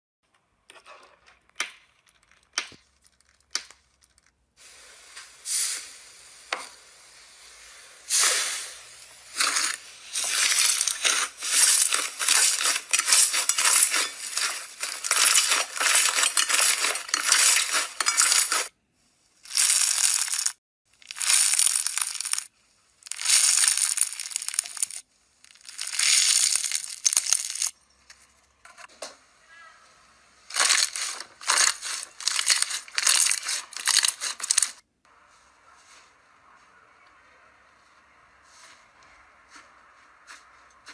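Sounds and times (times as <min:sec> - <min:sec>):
slime crackling and popping: 0:09.3 - 0:18.7, 0:19.5 - 0:27.7, 0:30.5 - 0:34.8.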